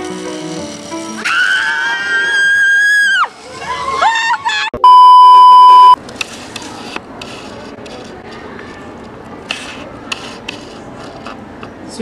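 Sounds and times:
loud electronic beep: 4.8s - 6.0s.

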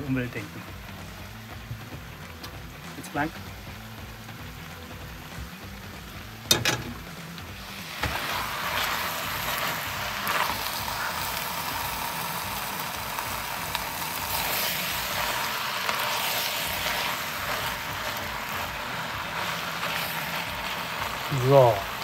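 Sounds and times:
meat and vegetables sizzling: 0.0s - 22.0s.

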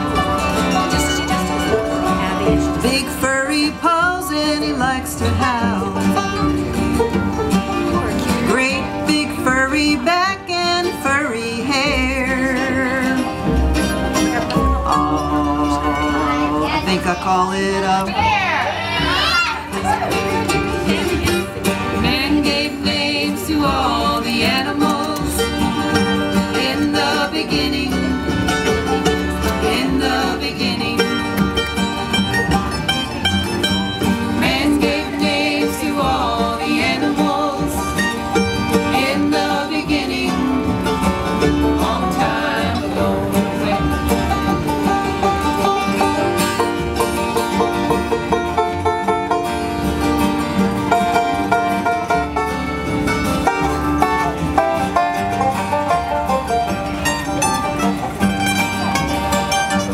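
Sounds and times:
bluegrass band playing: 0.0s - 59.9s.

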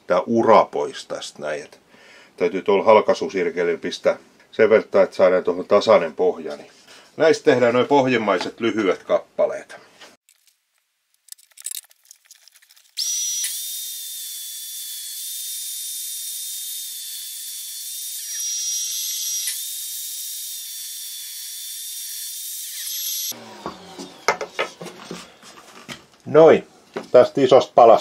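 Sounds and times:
table saw whining: 13.0s - 25.8s
wood knocks: 23.6s - 26.0s.

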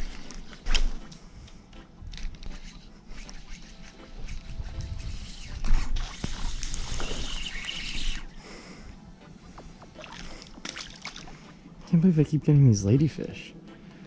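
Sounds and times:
fish splashing in water: 10.0s - 11.4s.

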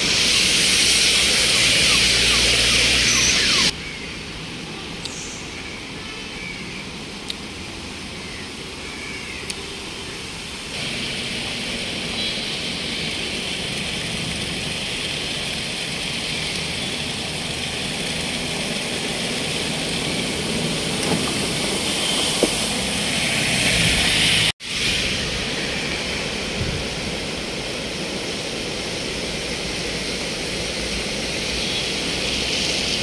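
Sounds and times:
car engines and tyres: 0.0s - 33.0s
rushing floodwater: 0.0s - 33.0s
vehicle passing through water: 10.8s - 33.0s.

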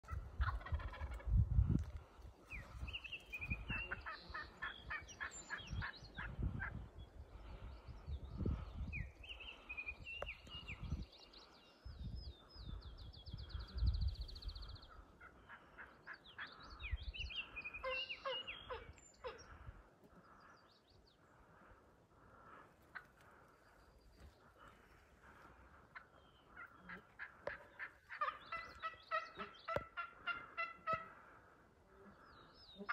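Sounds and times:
wild turkey calling: 0.0s - 1.3s, 2.5s - 6.8s, 14.8s - 31.5s
wind rumbling on microphone: 0.0s - 11.2s, 11.8s - 15.1s
songbirds singing: 2.4s - 32.9s.

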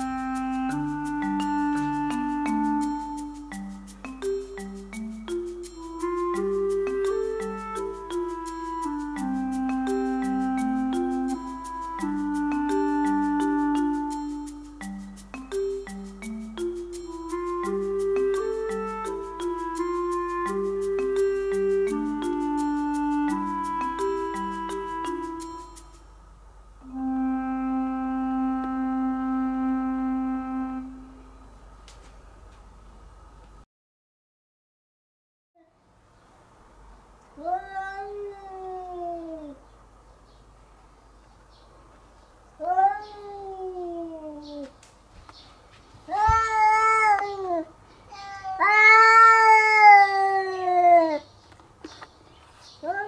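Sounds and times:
long held woodwind note: 26.8s - 31.4s
cat yowling: 37.4s - 39.6s, 42.6s - 44.7s, 46.1s - 51.3s.

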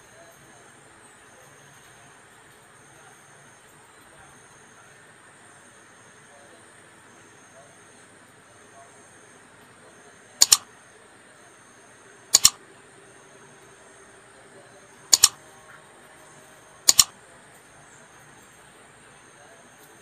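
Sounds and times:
mouse double clicks: 10.4s - 10.6s, 12.4s - 12.6s, 15.1s - 15.4s, 16.9s - 17.1s.

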